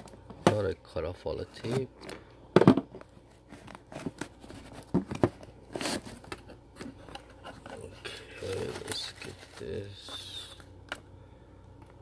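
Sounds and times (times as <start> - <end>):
packing peanuts rustling: 5.6 - 10.7.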